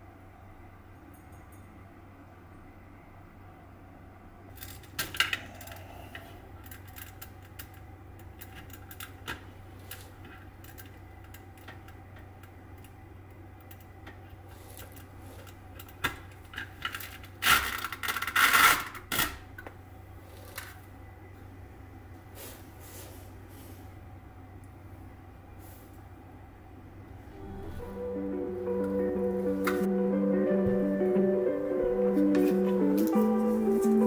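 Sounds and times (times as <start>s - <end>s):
velcro strip ripping: 17.4s - 19.4s.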